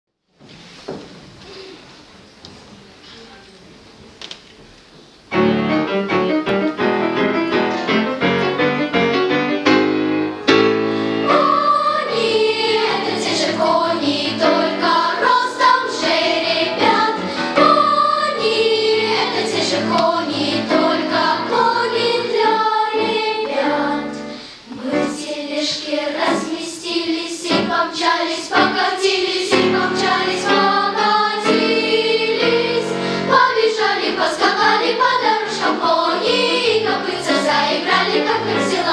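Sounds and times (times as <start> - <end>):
instrumental accompaniment: 5.3 - 25.3, 25.9 - 38.9
children's choir singing: 10.5 - 38.9.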